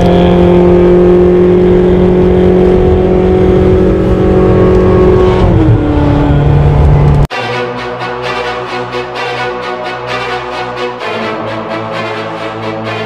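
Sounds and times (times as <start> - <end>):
car engine drone from inside cabin: 0.0 - 7.3.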